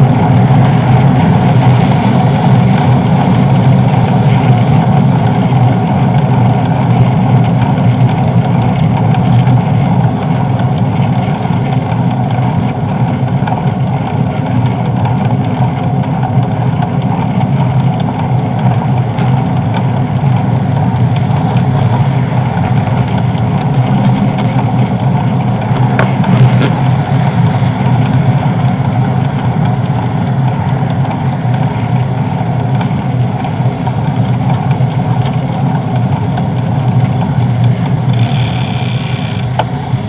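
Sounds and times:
wind rush: 0:00.0 - 0:05.8
bicycle road rumble: 0:00.0 - 0:40.0.

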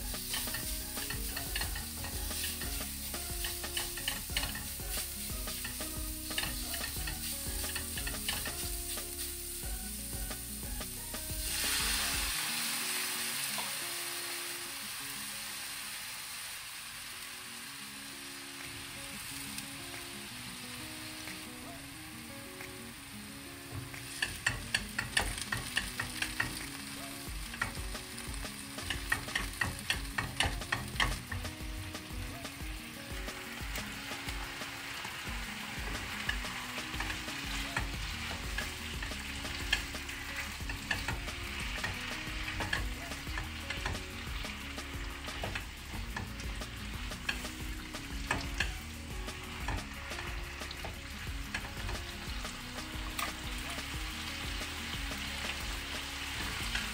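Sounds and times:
spatula scraping wok: 0:00.0 - 0:12.6, 0:33.8 - 0:56.9
vegetables sizzling: 0:00.0 - 0:56.9
sauce bubbling: 0:32.6 - 0:56.9.

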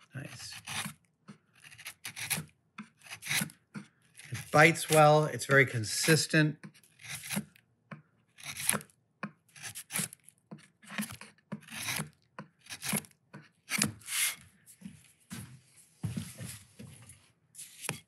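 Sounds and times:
chisel paring wood: 0:00.3 - 0:05.2, 0:05.9 - 0:14.1.

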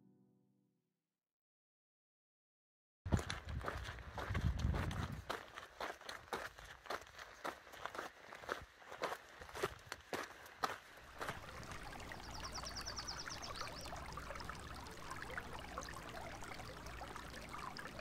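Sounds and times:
footsteps: 0:03.1 - 0:11.5
creek trickling over stones: 0:03.1 - 0:18.0.

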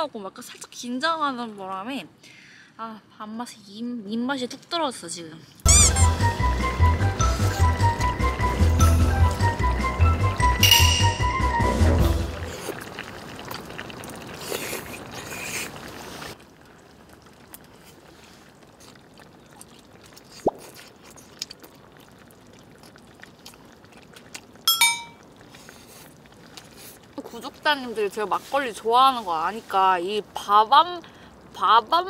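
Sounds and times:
eating sounds: 0:12.2 - 0:28.2
ringing metallic clink: 0:24.7 - 0:25.2.

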